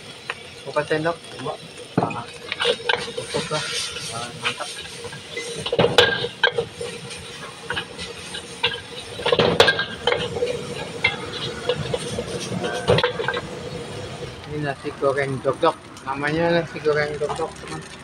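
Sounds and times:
rice sizzling: 0.0 - 18.0
metal spatula scraping a wok: 2.0 - 14.4.

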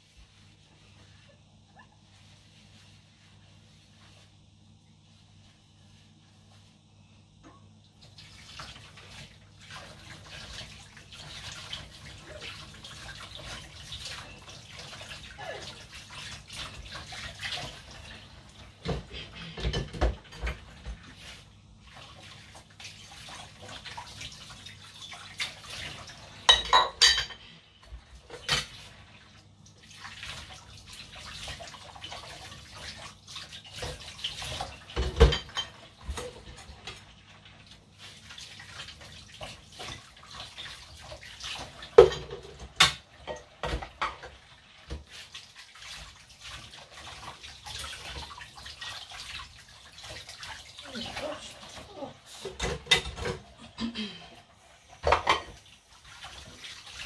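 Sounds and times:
dishes clinking: 26.4 - 27.5, 34.9 - 36.5, 41.9 - 44.3, 55.0 - 55.6
water splashing: 28.3 - 54.2, 54.9 - 57.0.

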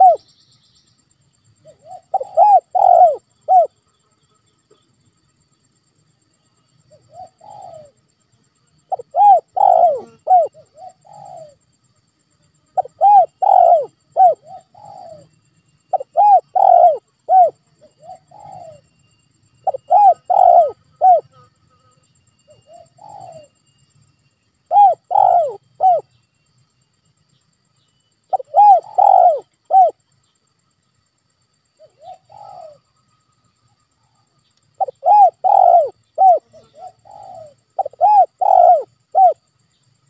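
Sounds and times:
dove cooing: 0.0 - 0.2, 1.6 - 3.8, 6.9 - 8.0, 8.9 - 11.6, 12.8 - 15.3, 15.9 - 18.9, 19.6 - 21.4, 22.5 - 23.6, 24.7 - 26.1, 28.3 - 30.0, 31.8 - 32.8, 34.8 - 39.4.

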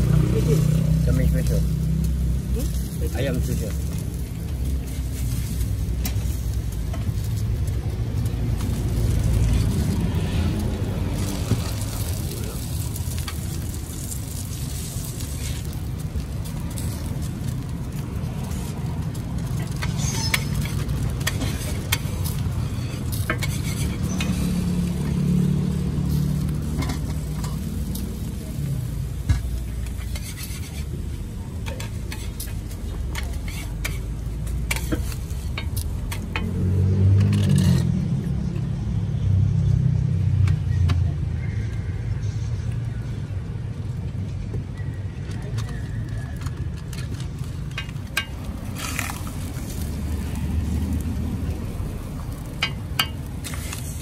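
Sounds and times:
food sizzling on a griddle: 0.0 - 37.9, 45.6 - 54.0
metal spatula scraping griddle: 0.4 - 7.5, 8.6 - 36.5, 37.2 - 38.0, 47.7 - 50.9, 52.1 - 54.0.

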